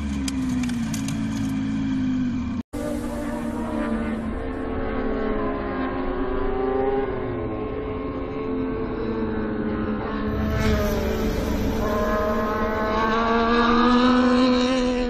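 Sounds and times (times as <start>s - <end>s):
racing motorcycle engines: 0.0s - 15.0s
brief rush of noise: 10.3s - 13.3s.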